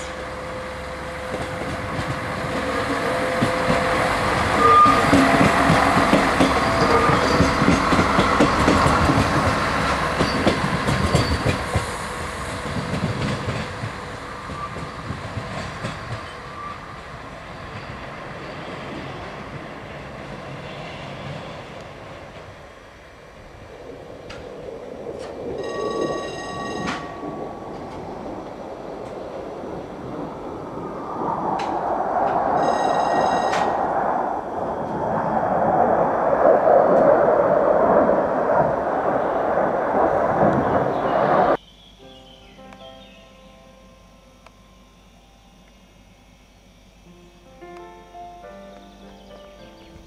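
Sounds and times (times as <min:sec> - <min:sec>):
diesel railcar engine running: 0:00.0 - 0:30.6
train wheels clacking on track: 0:01.2 - 0:17.0.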